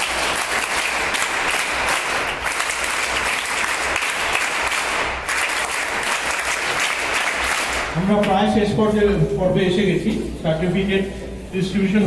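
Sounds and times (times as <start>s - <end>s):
group applause: 0.0s - 8.0s.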